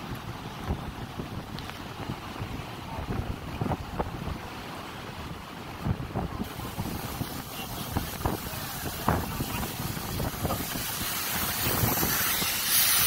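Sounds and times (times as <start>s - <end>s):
pressure washer spraying hiss: 6.4s - 13.0s.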